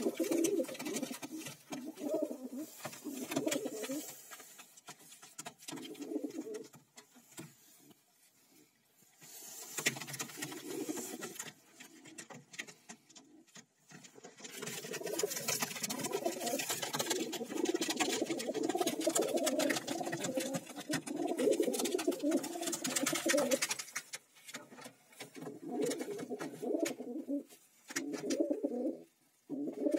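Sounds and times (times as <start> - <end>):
pigeons cooing: 0.0 - 4.2, 5.7 - 6.8, 10.2 - 12.4, 14.6 - 23.8, 25.4 - 29.9.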